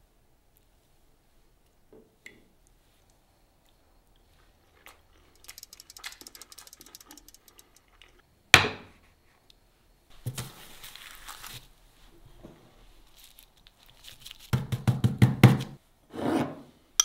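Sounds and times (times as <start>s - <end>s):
light crackles and clicks: 5.3s - 8.2s
handling rustle: 10.1s - 14.6s.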